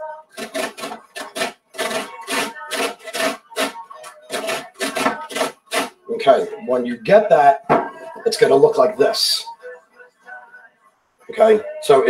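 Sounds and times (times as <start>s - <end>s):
lemon rasping on cheese grater: 0.4s - 6.0s.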